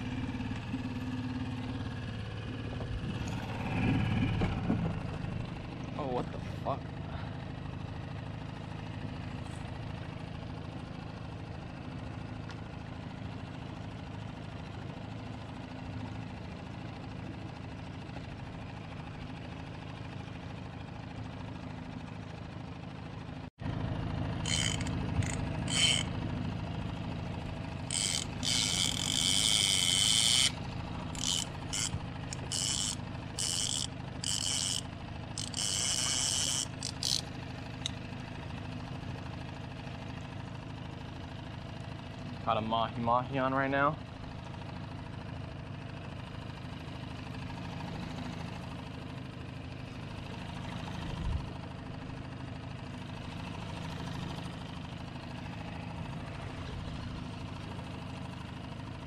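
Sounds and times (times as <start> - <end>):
outboard motor running: 0.0 - 59.0
fishing reel drag screaming: 24.4 - 26.2, 27.8 - 37.3.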